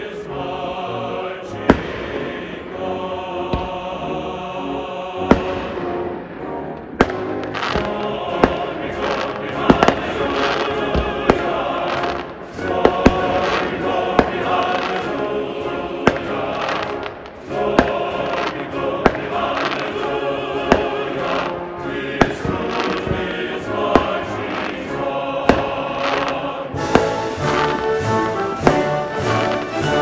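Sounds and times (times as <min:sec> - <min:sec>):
music with singing: 0:00.0 - 0:30.0
fireworks shells bursting: 0:06.8 - 0:15.2, 0:22.2 - 0:23.3, 0:25.5 - 0:30.0.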